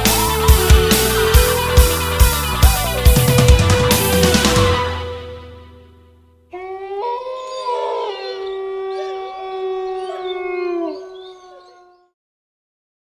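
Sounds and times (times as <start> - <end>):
dogs howling: 6.5 - 12.2.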